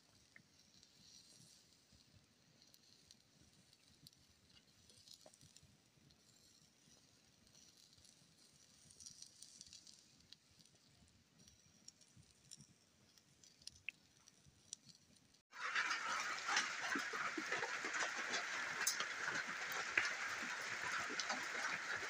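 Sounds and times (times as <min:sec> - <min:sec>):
small fire crackling and popping: 0:00.0 - 0:22.0
rain falling steadily: 0:15.5 - 0:22.0.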